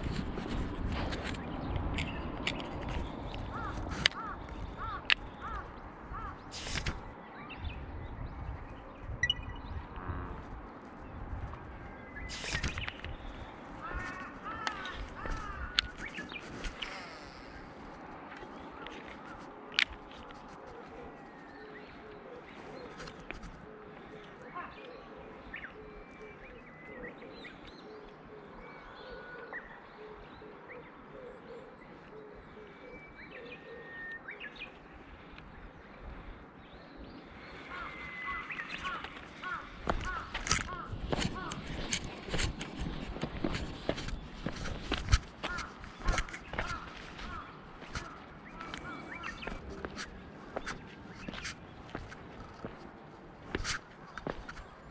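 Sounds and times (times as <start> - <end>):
brief rustle: 0.0 - 4.3, 6.5 - 7.1, 12.3 - 13.4, 53.6 - 54.6
wind rumbling on microphone: 0.0 - 23.7, 34.5 - 54.9
outdoor background noise: 0.0 - 54.9
bird calling: 1.2 - 7.2, 11.7 - 35.2, 37.2 - 52.9
birds chirping and whistling: 6.4 - 10.0, 11.6 - 17.8, 36.8 - 52.7.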